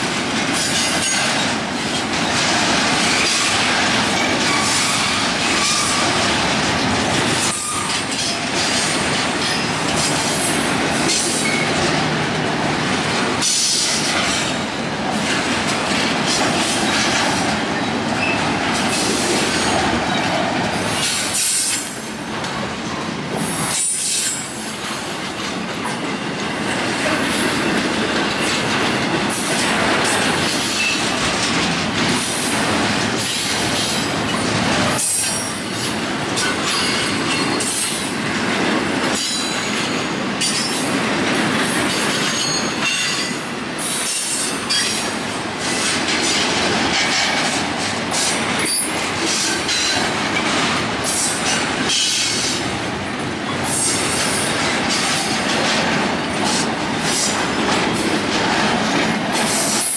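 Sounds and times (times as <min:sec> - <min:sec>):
freight train wheels rattling: 0:00.0 - 0:59.9
train wheel squeal: 0:00.5 - 0:01.7, 0:03.0 - 0:11.8, 0:17.8 - 0:22.0, 0:23.4 - 0:25.0, 0:33.2 - 0:38.0, 0:39.2 - 0:40.8, 0:41.8 - 0:45.8, 0:48.2 - 0:52.7.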